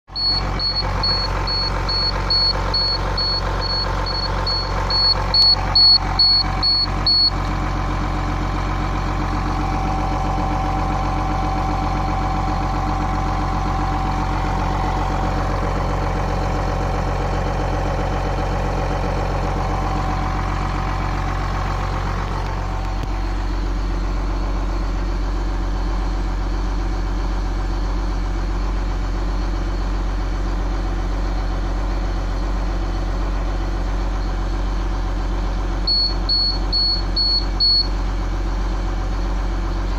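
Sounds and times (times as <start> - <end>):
bus engine idling: 0.0 - 39.9
high warning alarm beeping: 0.1 - 7.4, 35.9 - 38.0.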